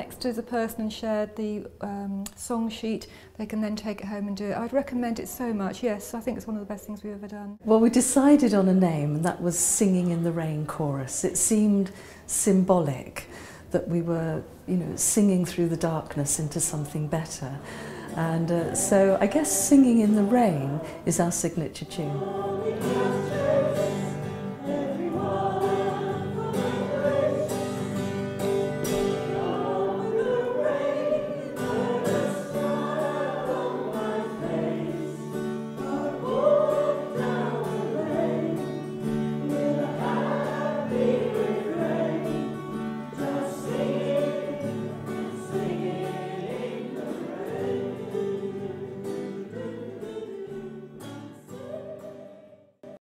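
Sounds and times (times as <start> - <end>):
choir singing in unison: 21.8 - 53.0.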